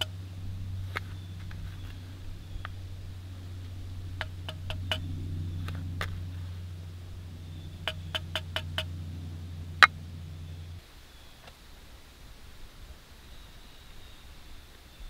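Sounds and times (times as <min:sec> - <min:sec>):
steady low hum: 0:00.0 - 0:15.0
wooden spoon tapping metal: 0:07.8 - 0:08.9.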